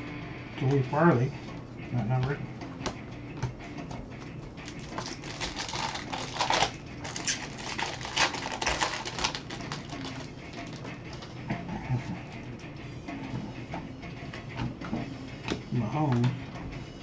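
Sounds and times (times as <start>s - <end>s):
card pack wrapper crinkling and tearing: 4.7s - 10.8s.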